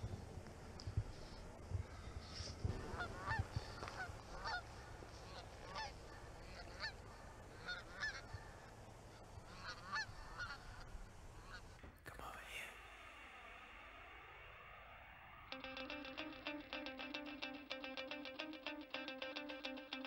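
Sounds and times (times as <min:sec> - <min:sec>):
geese honking: 0:02.9 - 0:08.3, 0:09.4 - 0:11.6.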